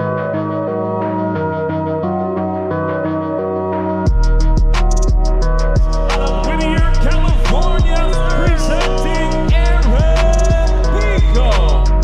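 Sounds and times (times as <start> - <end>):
deep bass kicks: 4.1 - 12.0
fast ticking hi-hats: 4.1 - 12.0
sustained pitched notes: 4.1 - 12.0.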